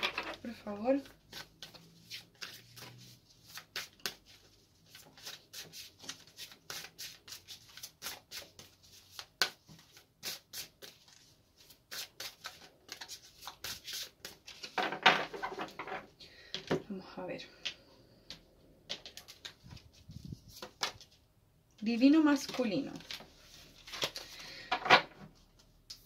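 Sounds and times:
cards being shuffled: 0.0 - 15.7, 18.9 - 21.2, 22.4 - 24.5.

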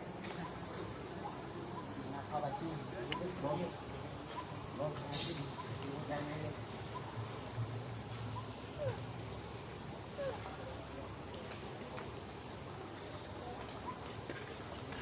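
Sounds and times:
high-pitched insect drone: 0.0 - 11.3.

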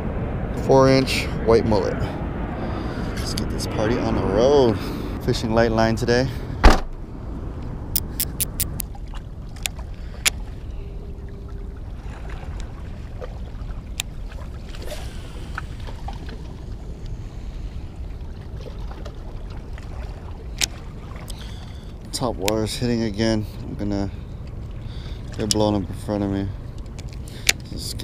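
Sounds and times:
wind rumble on microphone: 0.0 - 28.0
sharp clicks: 8.0 - 8.8.

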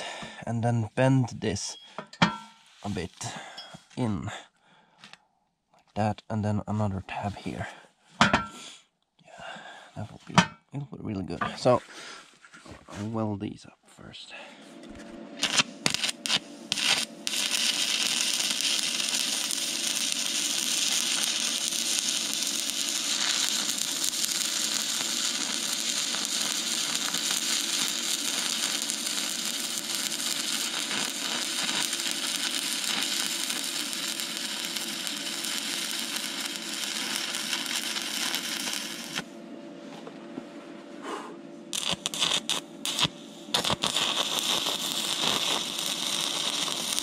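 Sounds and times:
welding arc snapping and hissing: 15.4 - 39.3, 41.7 - 47.0.

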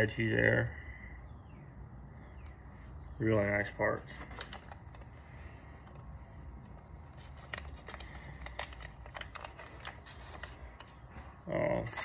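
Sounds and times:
packaging crinkling: 4.1 - 5.2, 6.7 - 10.9.

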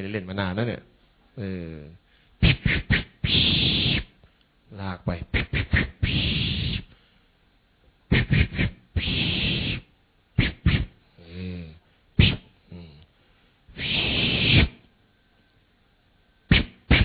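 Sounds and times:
man making mouth clicks: 2.4 - 4.1, 5.2 - 7.0, 8.1 - 13.1, 13.7 - 14.9, 16.5 - 17.0
long hissing breaths: 6.0 - 7.3, 8.5 - 9.9, 12.7 - 14.8.

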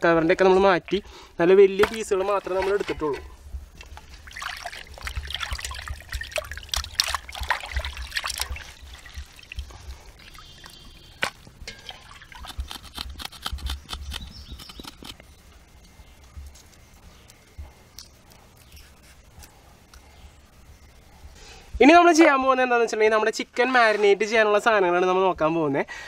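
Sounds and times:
water dripping into bowl: 3.8 - 12.6
hands swishing chicken in water: 3.9 - 10.8.

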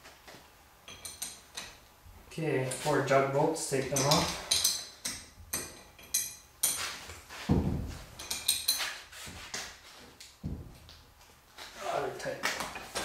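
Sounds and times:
metal hand tools clinking: 0.9 - 1.8, 3.8 - 6.9, 8.1 - 9.0
dull knocks: 7.5 - 8.0, 10.4 - 10.8.

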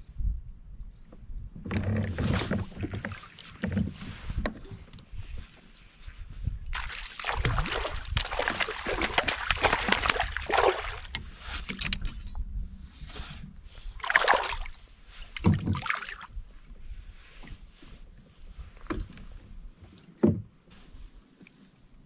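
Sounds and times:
fish splashing at water surface: 6.8 - 11.1.

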